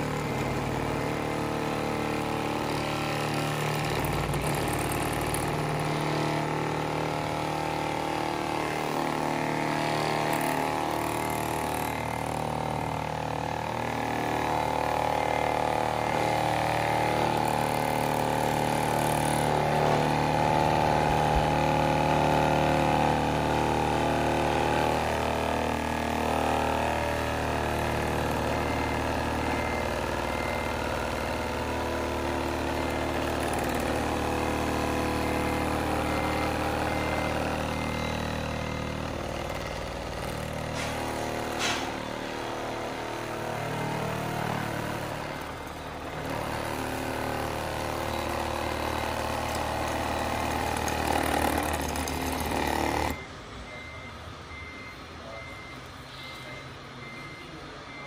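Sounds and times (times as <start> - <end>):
toy truck engine sound idling: 45.4 - 53.8.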